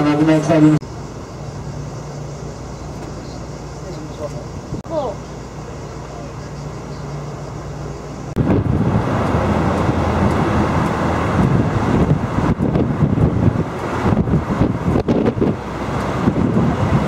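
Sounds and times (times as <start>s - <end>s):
bus engine hum: 0.0s - 17.0s
traffic noise: 0.0s - 17.0s
wind buffeting microphone: 8.3s - 17.0s.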